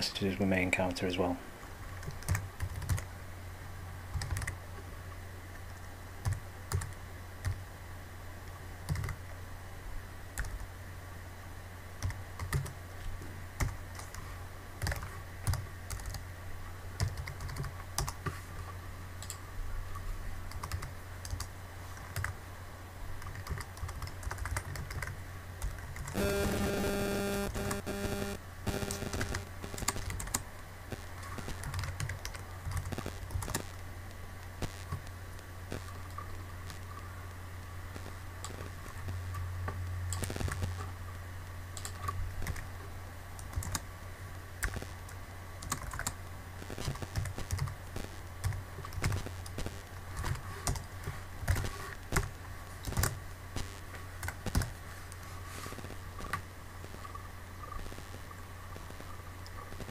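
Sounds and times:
low steady hum: 0.0s - 59.9s
steady pitched hum: 0.0s - 59.9s
computer keyboard typing: 2.0s - 3.1s, 4.1s - 4.6s, 6.2s - 7.6s, 8.9s - 9.2s, 12.0s - 12.8s, 13.6s - 14.2s, 14.8s - 16.2s, 17.0s - 18.3s, 20.5s - 22.4s, 23.2s - 30.4s, 31.2s - 33.7s, 41.8s - 42.7s, 43.4s - 43.8s, 45.6s - 46.2s, 46.8s - 47.8s, 48.4s - 49.6s, 50.2s - 53.2s, 54.2s - 54.7s.

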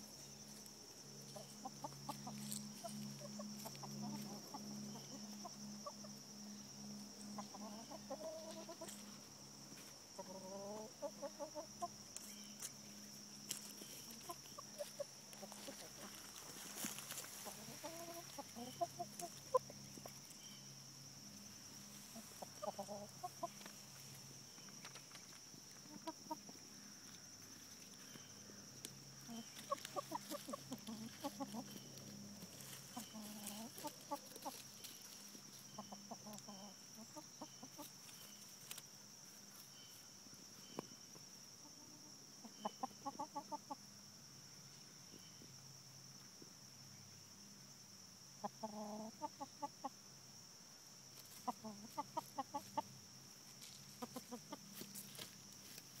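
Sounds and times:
hens clucking: 1.3s - 6.2s, 7.2s - 9.2s, 10.2s - 12.3s, 13.5s - 20.4s, 21.7s - 24.1s, 24.9s - 26.6s, 29.2s - 38.8s, 41.6s - 43.8s, 48.4s - 50.0s, 51.2s - 52.9s, 53.7s - 55.3s.

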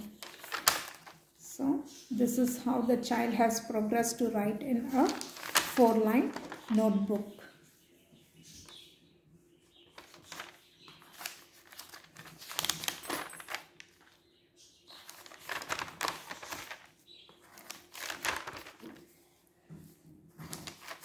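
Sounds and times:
paper pages rustling: 0.0s - 1.3s, 4.8s - 7.4s, 9.8s - 14.2s, 14.9s - 21.0s.

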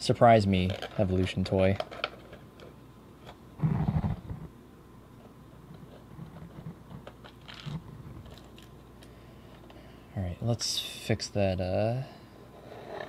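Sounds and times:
plastic packaging creaking: 6.2s - 8.8s.

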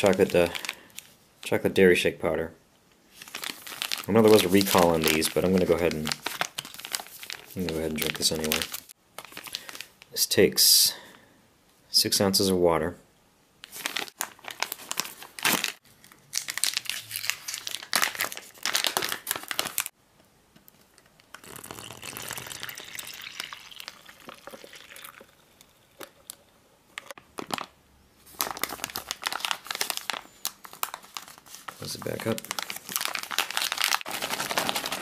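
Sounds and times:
plastic pouch crinkling: 0.0s - 1.1s, 3.1s - 10.1s, 13.6s - 19.9s, 20.9s - 25.3s, 27.0s - 35.0s.

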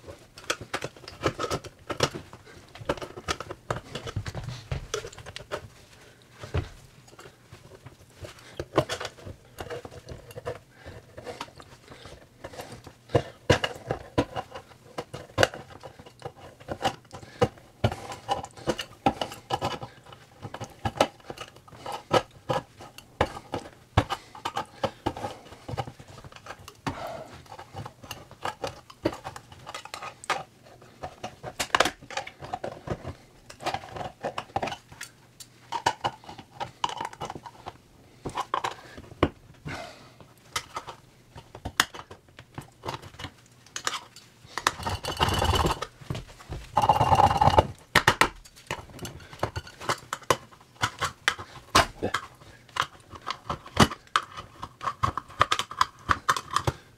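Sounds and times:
tin scraping: 46.6s - 47.8s.

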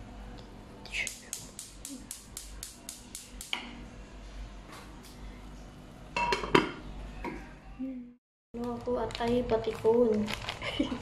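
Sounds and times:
gas stove igniter clicking: 1.0s - 3.7s.

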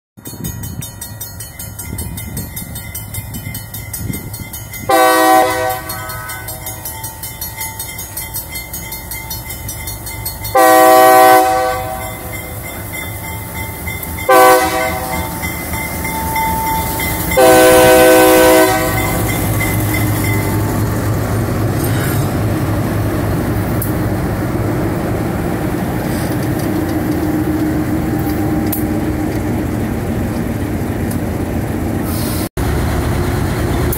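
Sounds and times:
diesel locomotive engines: 0.2s - 33.9s
train wheels rolling past: 0.2s - 33.9s
locomotive air horn blasts: 4.9s - 6.8s, 10.5s - 12.3s, 14.3s - 15.4s, 17.4s - 19.4s.

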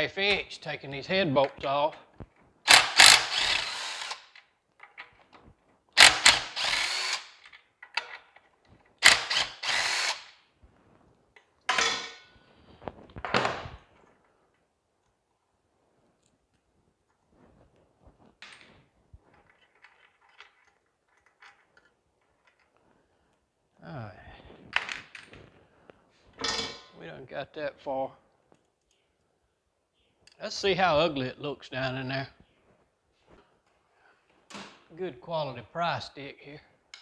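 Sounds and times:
power drill bursts: 2.7s - 4.4s, 6.0s - 7.4s, 9.0s - 10.4s.

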